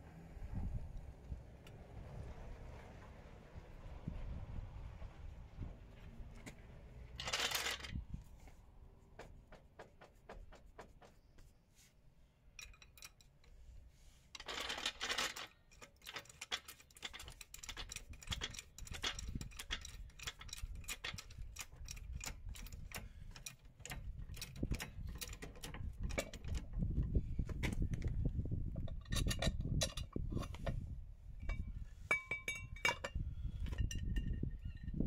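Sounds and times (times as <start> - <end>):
small metal parts clicking: 7.2 - 8.0, 12.6 - 13.5, 14.4 - 26.7.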